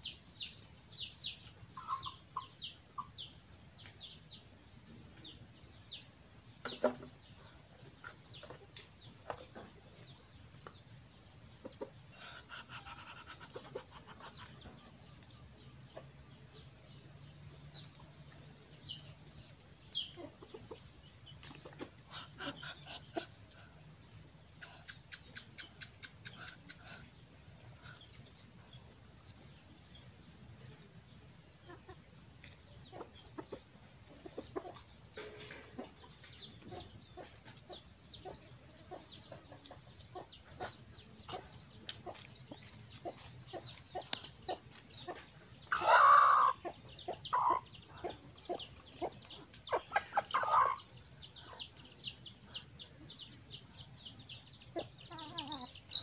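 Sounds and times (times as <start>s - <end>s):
chickens clucking: 6.6s - 16.3s, 20.0s - 23.7s, 31.5s - 51.8s, 54.6s - 56.0s.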